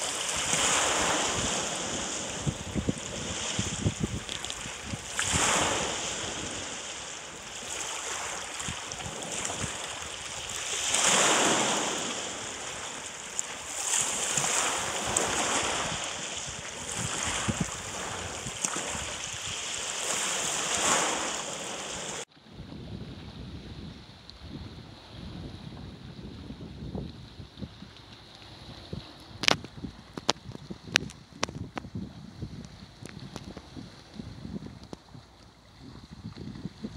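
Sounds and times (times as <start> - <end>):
waves washing over pebbles: 0.0 - 22.3.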